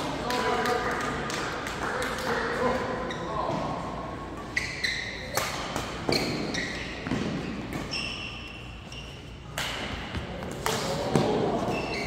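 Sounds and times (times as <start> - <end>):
shoes squeaking on court: 3.0 - 3.8, 4.4 - 12.0
rackets striking shuttlecock: 5.2 - 8.6, 9.5 - 11.9.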